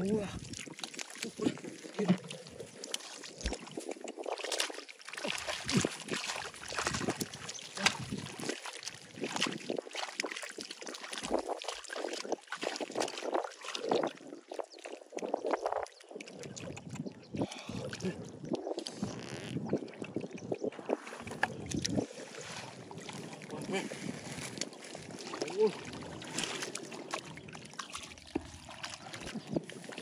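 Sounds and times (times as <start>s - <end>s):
shallow water sloshing by hand: 0.0s - 30.0s.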